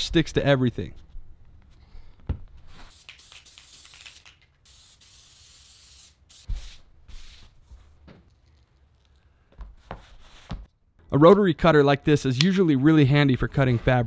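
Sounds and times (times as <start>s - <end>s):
aerosol spray hissing: 2.9s - 6.8s.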